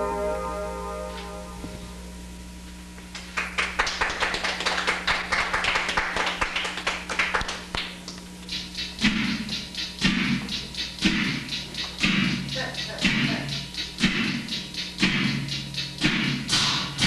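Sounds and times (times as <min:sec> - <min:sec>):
hand clapping: 0:03.1 - 0:12.7
low thumping beat: 0:08.4 - 0:17.0.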